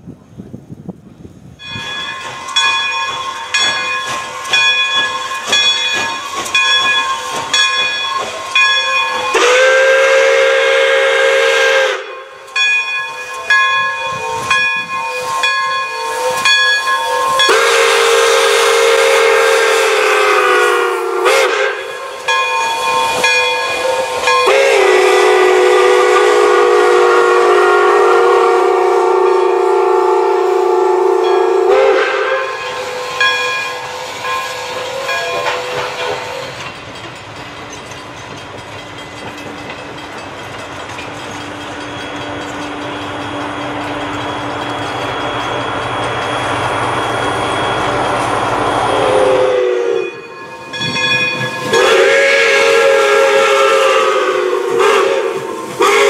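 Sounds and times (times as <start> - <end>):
locomotive bell ringing: 1.6 - 55.9
steam whistle blasts: 9.0 - 12.4, 13.3 - 36.6, 46.9 - 50.4, 51.6 - 56.0.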